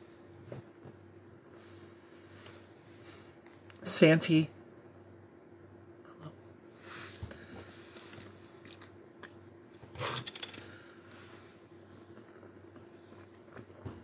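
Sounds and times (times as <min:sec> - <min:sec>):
person sipping: 0:09.9 - 0:11.2.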